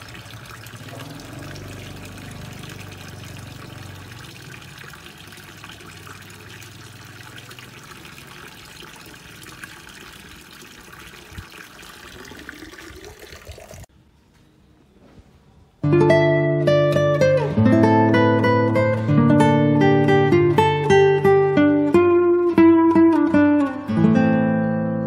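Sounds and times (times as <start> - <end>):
water pouring into pond: 0.0 - 13.9.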